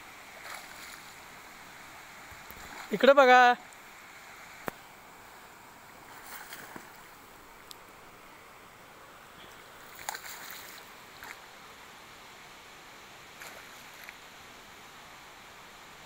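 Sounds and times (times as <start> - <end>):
faint water noise: 0.0 - 16.0
fish splashing: 9.9 - 11.4.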